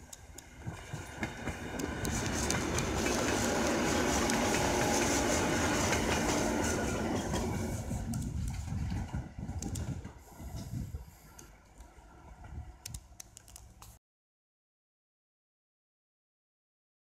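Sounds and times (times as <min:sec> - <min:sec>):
train wheels clattering on rails: 0:00.0 - 0:12.7.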